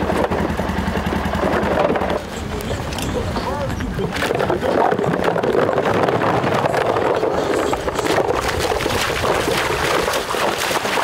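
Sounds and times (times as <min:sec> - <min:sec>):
wading through water: 0:00.0 - 0:11.0
decoys splashing down: 0:08.0 - 0:11.0.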